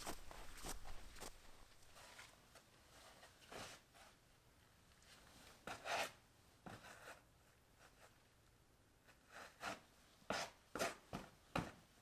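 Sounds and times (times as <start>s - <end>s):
footsteps scuffing on sand: 0.0s - 2.3s.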